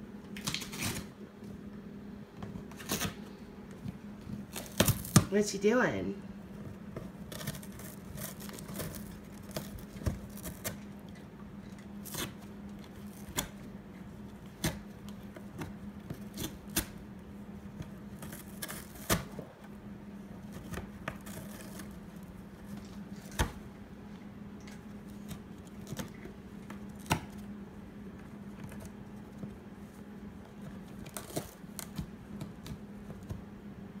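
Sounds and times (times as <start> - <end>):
steady low hum: 0.0 - 34.0
cat tearing cardboard: 0.4 - 1.1, 2.6 - 3.3, 4.4 - 5.4, 6.6 - 19.6, 20.2 - 23.6, 28.2 - 33.4.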